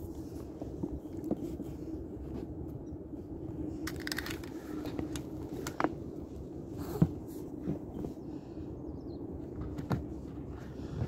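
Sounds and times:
rope rustling and scraping: 0.0s - 8.4s
steady low hum: 0.0s - 11.0s.

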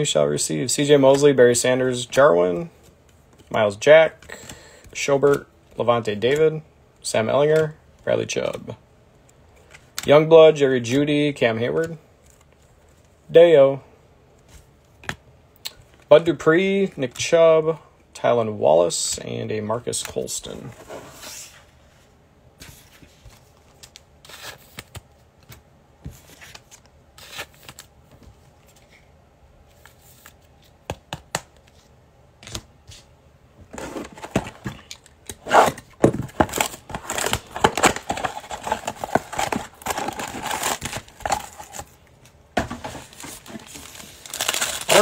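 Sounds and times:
wrapping crinkling and tearing: 36.3s - 42.0s, 43.0s - 45.0s.

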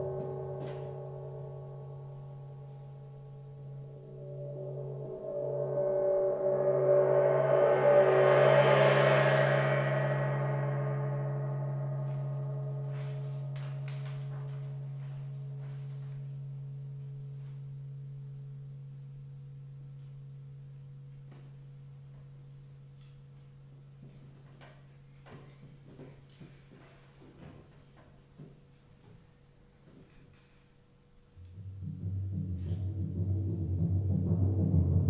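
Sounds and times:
gong ringing: 0.0s - 17.0s, 31.4s - 35.0s.

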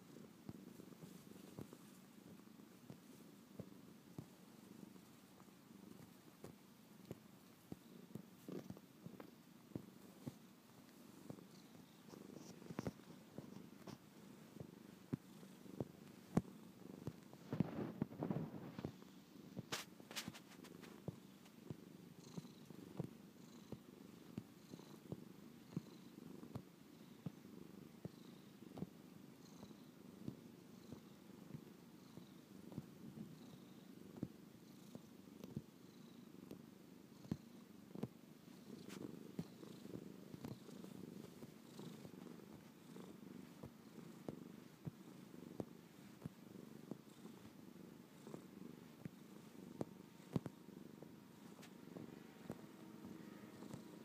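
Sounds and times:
cat purring: 0.0s - 54.0s
soft irregular clicks: 48.3s - 52.7s.

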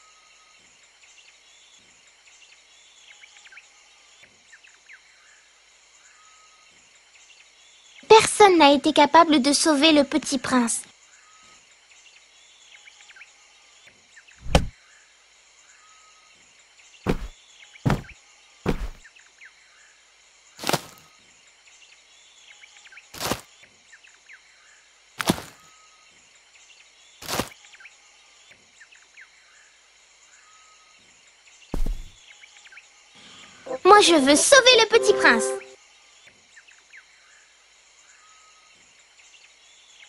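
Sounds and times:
sharp thuds: 14.4s - 14.7s, 17.1s - 17.3s, 17.9s - 19.0s, 20.6s - 21.0s, 23.2s - 23.4s, 25.2s - 25.6s, 27.2s - 27.5s, 31.8s - 32.2s
birds chirping: 17.1s - 17.3s, 17.9s - 19.0s, 25.2s - 25.7s, 27.2s - 27.5s, 31.8s - 32.2s.

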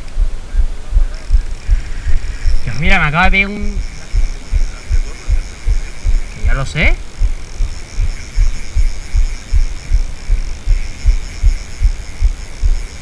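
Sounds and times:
rhythmic low thumps: 0.0s - 13.0s.

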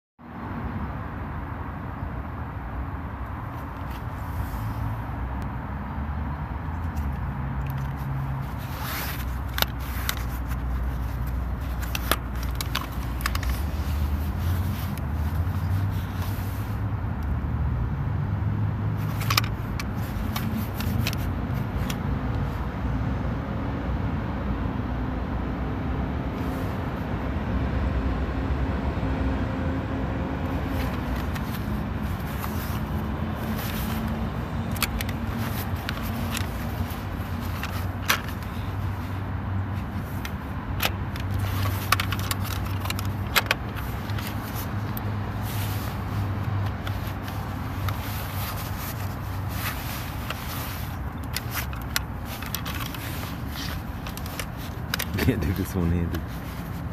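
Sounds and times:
vehicle engines rumbling: 0.2s - 56.9s
plastic clicks and scrapes: 6.8s - 17.3s, 19.0s - 22.4s, 30.4s - 56.9s.

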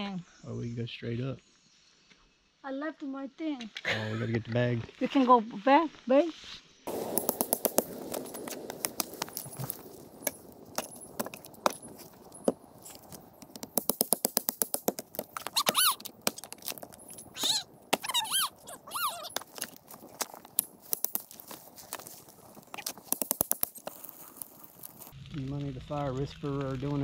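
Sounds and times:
crackling campfire: 6.8s - 27.0s
high squeaky chirps: 14.7s - 25.1s.

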